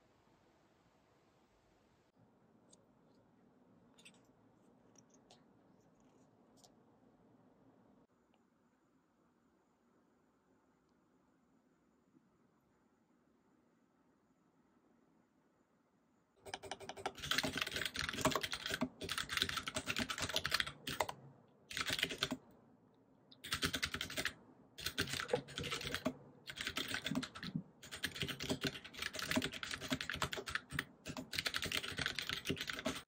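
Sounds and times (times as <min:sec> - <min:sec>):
computer keyboard typing: 0:16.4 - 0:22.4, 0:23.4 - 0:33.0.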